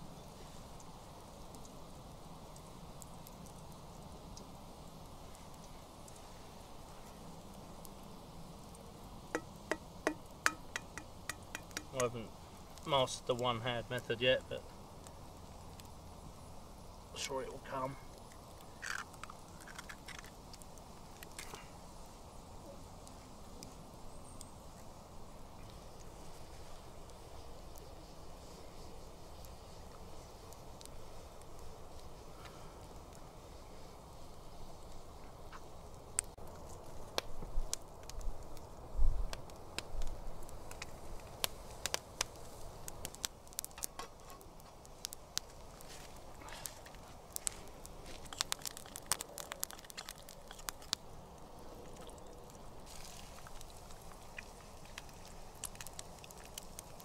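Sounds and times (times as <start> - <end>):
egg sizzling in oil: 0.1 - 13.0, 14.7 - 38.9, 39.5 - 57.0
oil popping and crackling: 0.8 - 21.7, 34.1 - 57.0.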